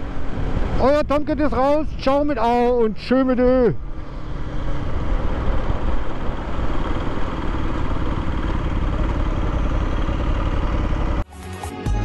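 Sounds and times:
wind and road noise: 0.0 - 11.3
motorcycle engine running: 3.8 - 11.2.

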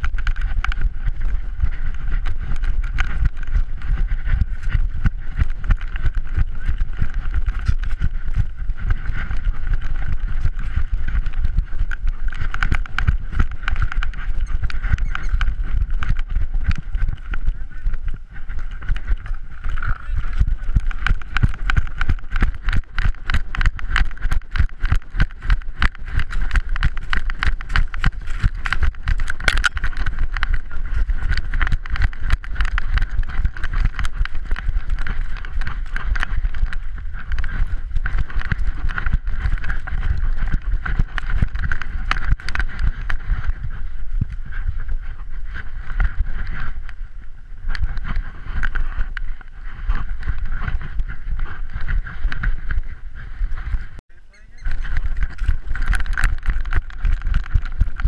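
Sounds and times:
camera mount knocking and rubbing: 19.7 - 37.5.

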